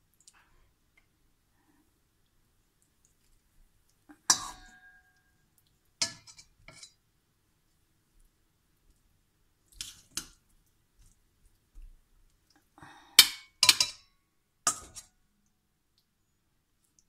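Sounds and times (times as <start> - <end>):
metal fork clinking against steel bowl: 4.3 - 5.2, 13.2 - 14.1, 14.7 - 15.1.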